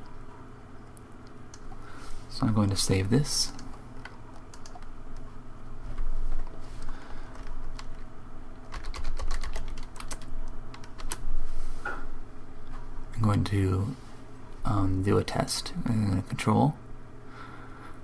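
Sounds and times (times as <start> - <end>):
typing on computer keyboard: 3.5 - 4.9, 8.6 - 11.2.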